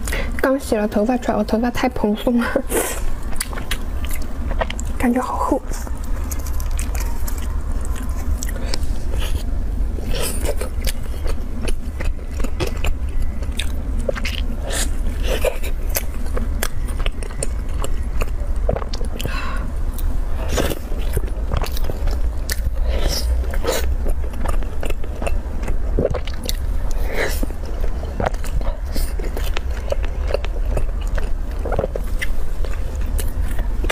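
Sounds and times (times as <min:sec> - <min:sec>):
steady low hum: 0:00.0 - 0:33.9
bun being torn and chewed: 0:05.8 - 0:19.4.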